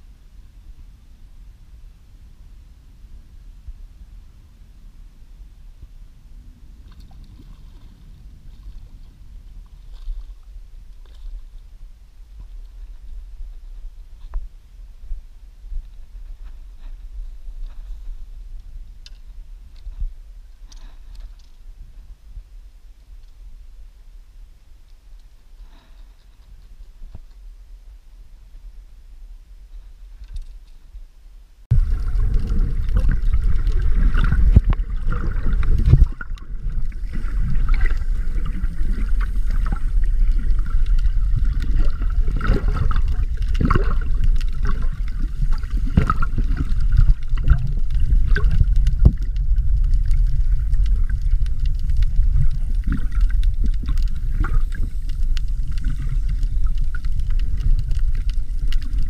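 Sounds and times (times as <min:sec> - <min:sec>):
underwater rumble of moving water: 0:00.0 - 0:30.7, 0:31.5 - 0:59.0
sharp underwater clicks: 0:31.8 - 0:59.0.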